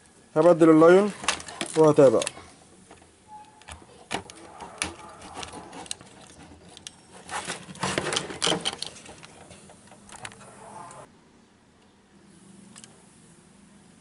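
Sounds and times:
hands handling circuit parts: 0.4s - 11.1s.

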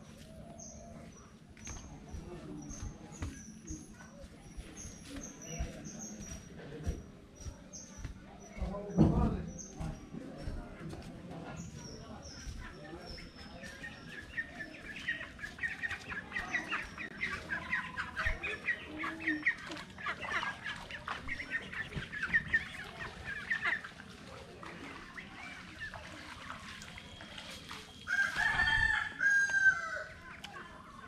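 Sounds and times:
chickens clucking: 0.0s - 31.0s
rooster crowing: 28.1s - 30.1s.

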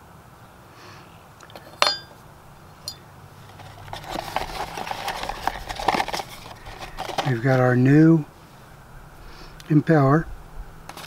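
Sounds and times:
metal part clinking on wood: 1.5s - 2.2s
cardboard box and packaging rustling: 3.4s - 7.9s.

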